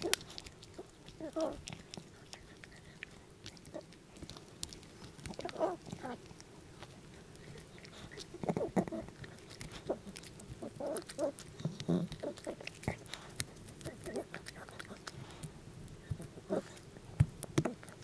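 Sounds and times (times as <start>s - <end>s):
dog crunching a bone: 0.0s - 18.0s
wet mouth clicks: 7.2s - 18.0s.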